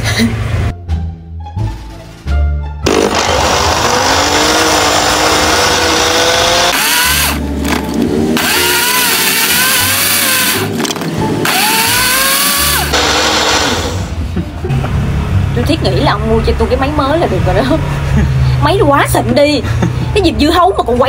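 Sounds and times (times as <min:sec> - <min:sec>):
blender motor whining: 0:02.8 - 0:07.8, 0:08.4 - 0:14.2.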